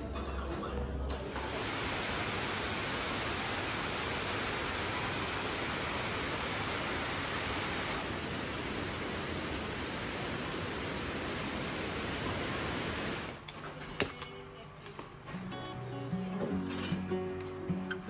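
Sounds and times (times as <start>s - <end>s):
waterfall rushing: 1.3s - 13.4s.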